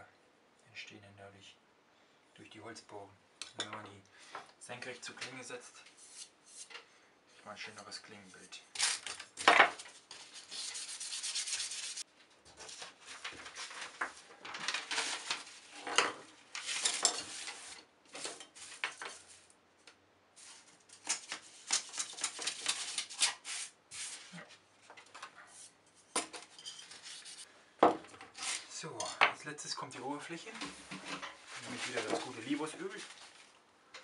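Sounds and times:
sandpaper rasping on wood: 10.4 - 12.0.

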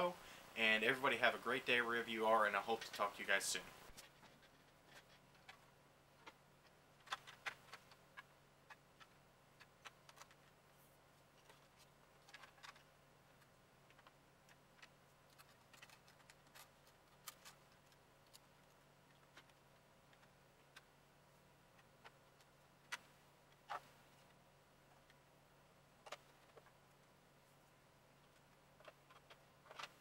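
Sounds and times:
low steady hum: 0.0 - 30.0
plastic parts clicking: 6.2 - 10.5, 28.2 - 30.0.

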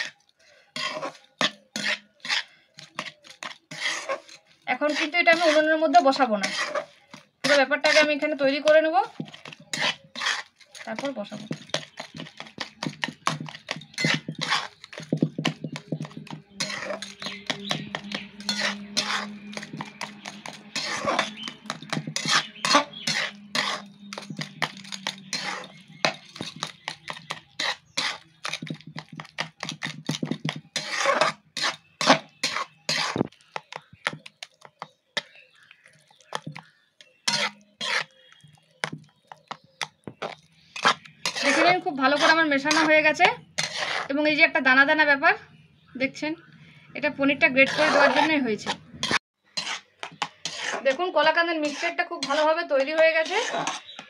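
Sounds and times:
metal spatula scraping a wok: 0.0 - 35.3, 35.9 - 44.3, 47.4 - 54.0.

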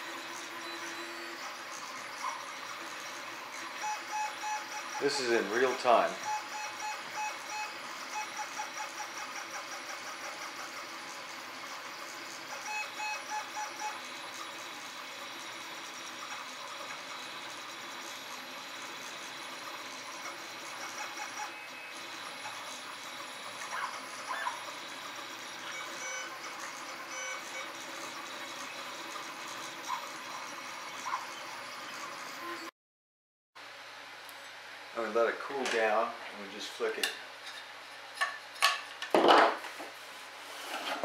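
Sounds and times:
stepper motors whirring: 0.0 - 32.7.

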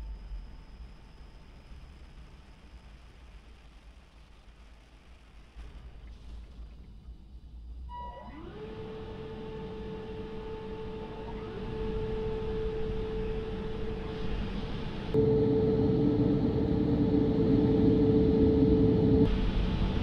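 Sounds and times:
electric motor whine: 8.3 - 19.3
low rumble: 11.9 - 20.0.

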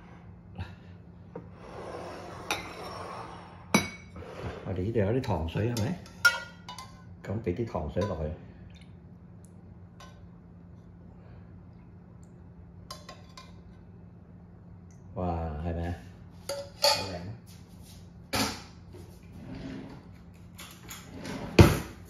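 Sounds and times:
metal spoon clinking on pots: 5.2 - 7.1, 12.9 - 13.6, 16.5 - 17.2.

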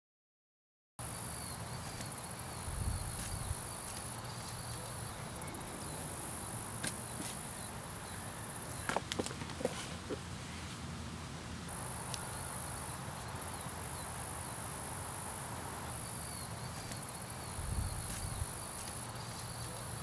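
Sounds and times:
crickets chirping: 1.0 - 9.1, 11.7 - 20.0.

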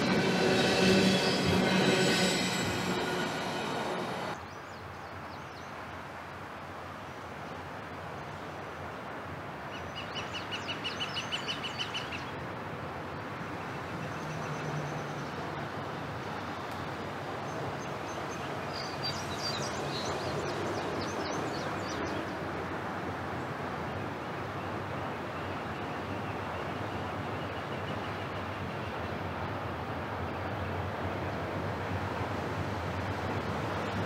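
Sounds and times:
distant freight train rumbling: 0.0 - 4.4, 17.6 - 23.6, 30.9 - 34.0.

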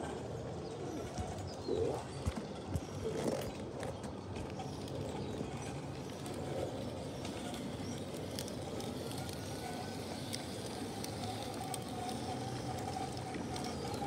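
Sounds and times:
model locomotive humming: 0.0 - 14.0
wheels clicking on rails: 0.0 - 14.0.

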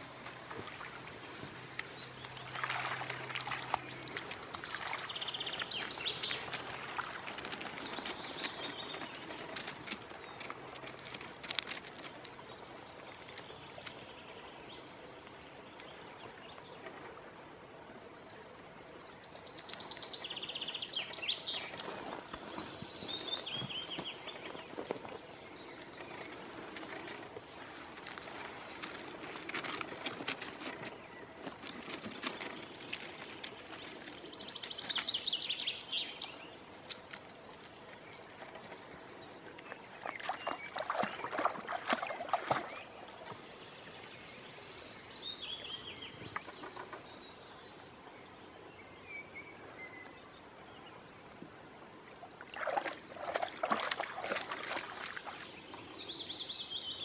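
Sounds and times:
dog rustling through grass: 0.0 - 5.1
crunches on gravel: 0.0 - 12.5, 21.5 - 36.0.

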